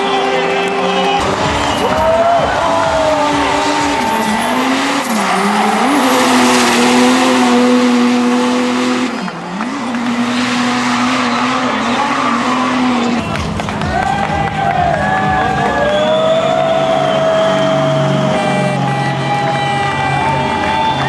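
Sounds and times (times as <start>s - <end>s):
diesel engine at high revs: 0.0s - 21.0s.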